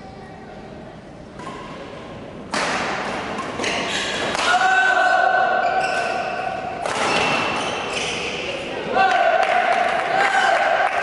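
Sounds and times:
voices in hall: 0:00.0 - 0:03.0, 0:03.6 - 0:11.0
racket striking shuttlecock: 0:02.5 - 0:04.6.

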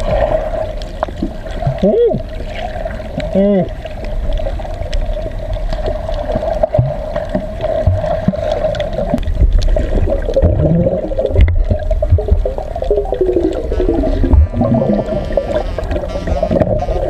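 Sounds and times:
water bubbling and gurgling underwater: 0:00.0 - 0:17.0
low groan-like sounds: 0:10.4 - 0:17.0
underwater knocks: 0:10.4 - 0:17.0.

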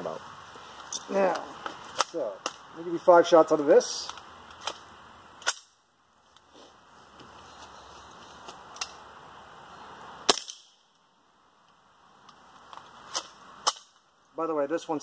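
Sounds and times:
suppressed rifle shots: 0:10.3 - 0:10.8.

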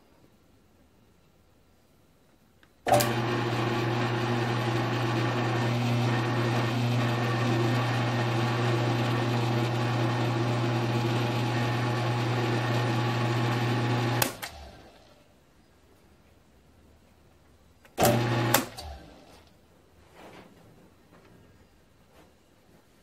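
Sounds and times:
mill-drill motor humming and whirring: 0:02.9 - 0:14.6, 0:18.0 - 0:18.8.

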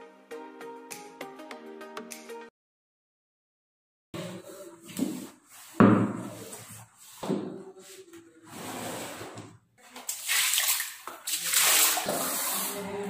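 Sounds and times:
cloth rubbing tabletop: 0:04.2 - 0:09.6, 0:11.5 - 0:13.0.

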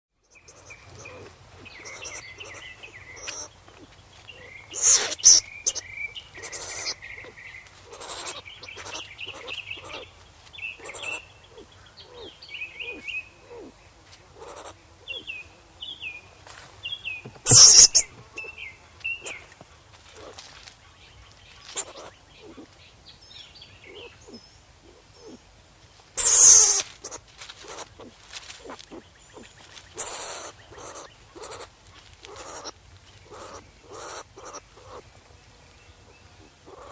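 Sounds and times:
skunk squeaking: 0:00.2 - 0:13.7, 0:14.4 - 0:15.2, 0:17.2 - 0:20.4, 0:21.3 - 0:22.7, 0:26.2 - 0:35.1, 0:36.6 - 0:36.9
skunk hissing: 0:00.3 - 0:13.7, 0:14.3 - 0:15.3, 0:17.4 - 0:18.5, 0:19.2 - 0:20.4, 0:21.6 - 0:22.7, 0:26.2 - 0:35.0, 0:36.4 - 0:36.9.

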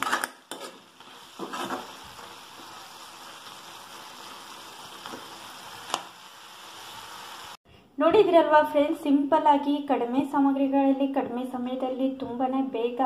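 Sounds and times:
curry simmering and sizzling: 0:00.0 - 0:07.6.

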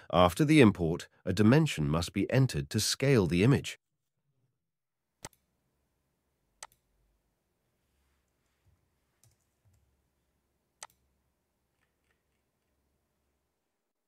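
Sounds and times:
computer mouse clicks: 0:05.2 - 0:05.4, 0:06.6 - 0:06.8, 0:09.2 - 0:09.9, 0:10.8 - 0:11.0.

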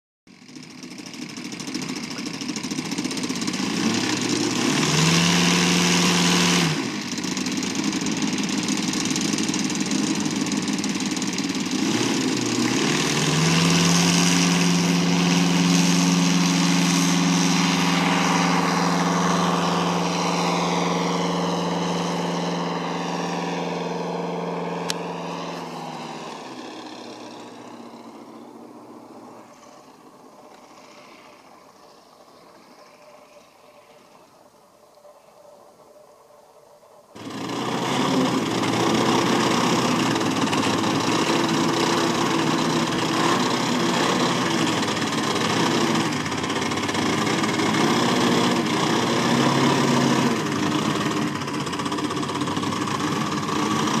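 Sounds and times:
model airplane engine and propeller: 0:00.3 - 0:54.0.

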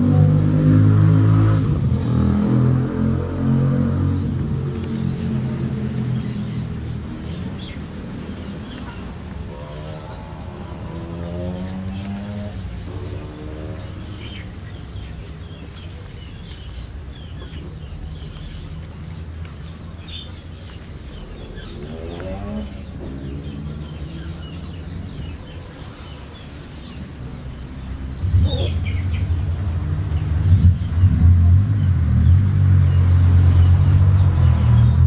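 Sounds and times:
small birds chirping: 0:03.4 - 0:35.0
steady low rumble: 0:16.6 - 0:26.6
louder low rumble: 0:17.7 - 0:25.9.

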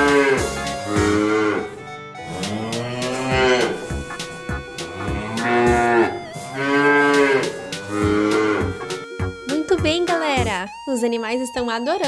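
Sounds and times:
ox mooing: 0:00.0 - 0:09.2
faint music with light beat: 0:00.0 - 0:12.0.

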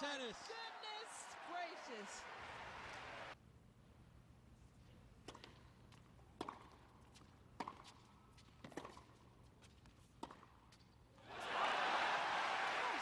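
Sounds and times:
crowd applause: 0:00.2 - 0:03.4, 0:11.3 - 0:13.0.

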